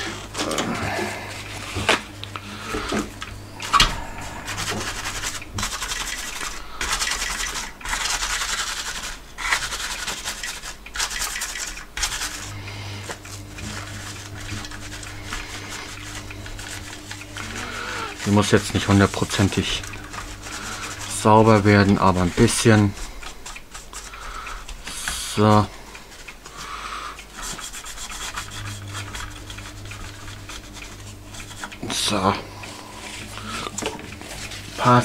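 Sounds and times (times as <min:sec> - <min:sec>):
tissue scrubbing circuit board: 0:00.0 - 0:26.4, 0:27.2 - 0:35.0.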